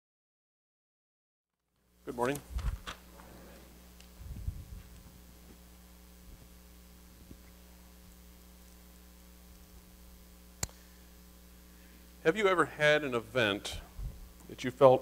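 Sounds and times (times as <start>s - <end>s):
electrical mains hum: 1.7s - 15.0s
sharp click: 10.6s - 10.8s.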